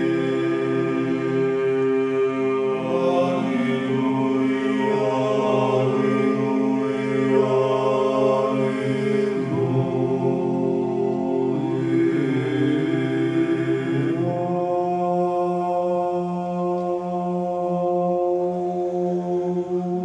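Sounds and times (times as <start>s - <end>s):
unaccompanied vocal chant: 0.0s - 20.0s.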